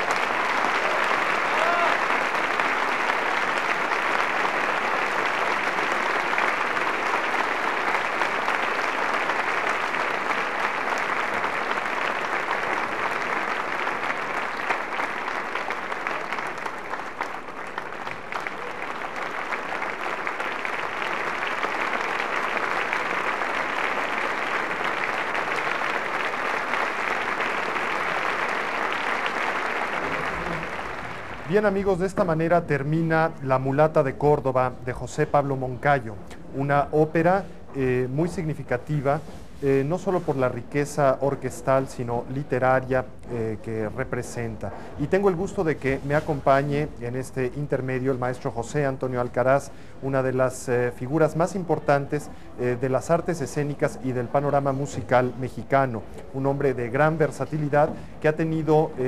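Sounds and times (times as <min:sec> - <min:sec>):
audience applauding: 0:00.0 - 0:35.6.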